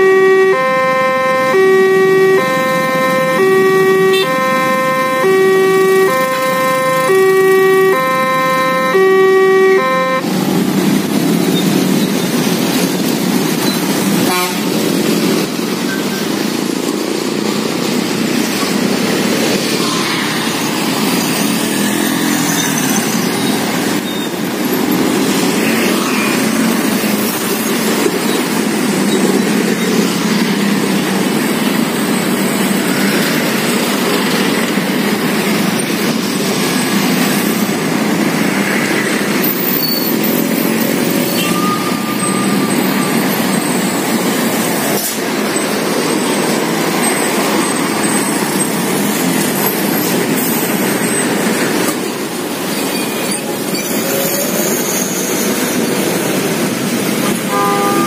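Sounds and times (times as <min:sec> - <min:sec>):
short horn beep: 0:00.0 - 0:10.3, 0:41.0 - 0:43.4, 0:57.2 - 0:58.0
car engines passing: 0:00.0 - 0:58.0.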